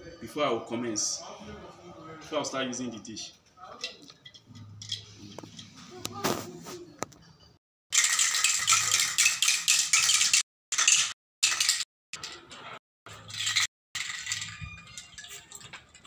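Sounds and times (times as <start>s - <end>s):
spray can rattling: 7.9s - 11.8s, 13.3s - 16.0s.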